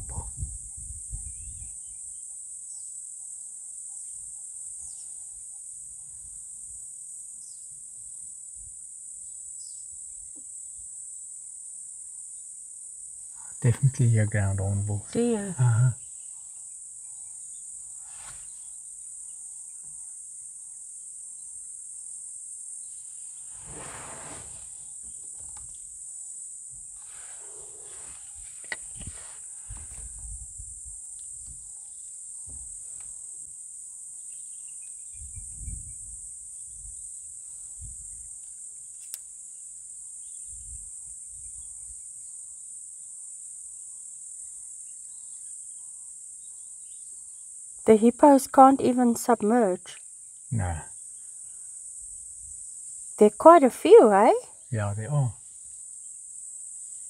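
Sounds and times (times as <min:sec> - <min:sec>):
high-pitched insect drone: 0:13.6 - 0:16.1, 0:39.5 - 0:55.3.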